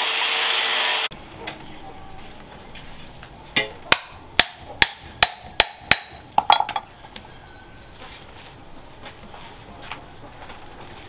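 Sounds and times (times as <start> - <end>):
hammer striking metal: 3.6 - 6.9.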